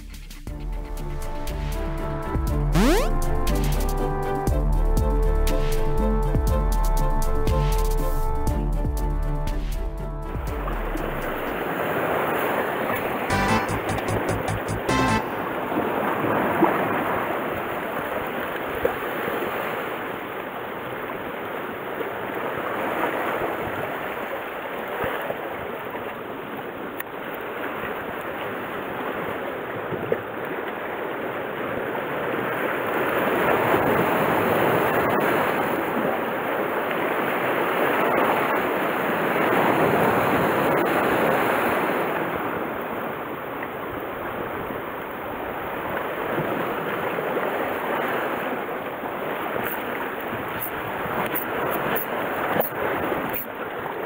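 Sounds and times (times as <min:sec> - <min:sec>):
waves washing on rocky shore: 0:11.4 - 0:13.3, 0:15.4 - 0:54.0.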